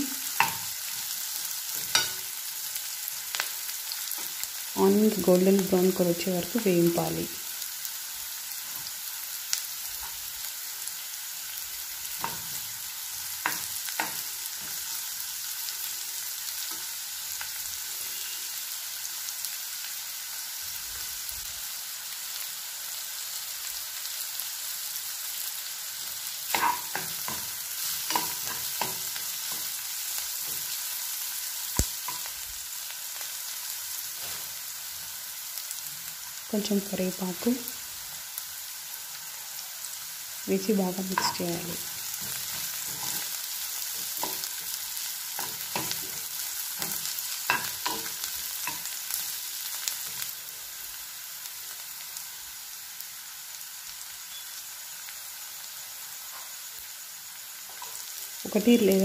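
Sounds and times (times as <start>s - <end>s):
onions sizzling in hot oil: 0.0s - 59.0s
steel spoon scraping a pan: 0.4s - 2.4s, 26.5s - 30.7s, 41.1s - 49.3s.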